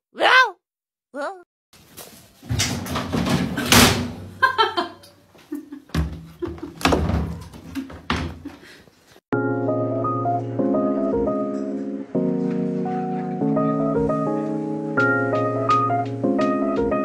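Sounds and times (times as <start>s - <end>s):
door banging and rattling: 2.4s - 4.6s, 5.9s - 8.5s
music: 9.3s - 17.0s.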